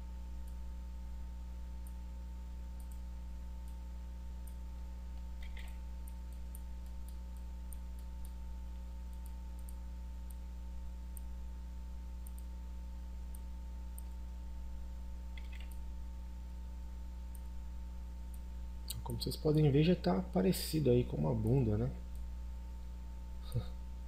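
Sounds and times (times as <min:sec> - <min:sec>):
low electrical hum: 0:00.0 - 0:24.0
computer mouse clicks: 0:02.8 - 0:03.0, 0:04.4 - 0:08.4, 0:09.0 - 0:10.4, 0:12.2 - 0:12.5, 0:15.3 - 0:15.8.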